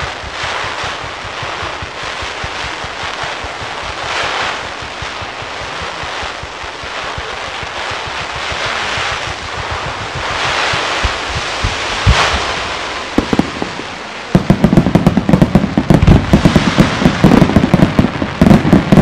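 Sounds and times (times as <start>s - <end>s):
fireworks crackling hiss: 0.0s - 19.0s
firework launch thumps: 8.0s - 19.0s.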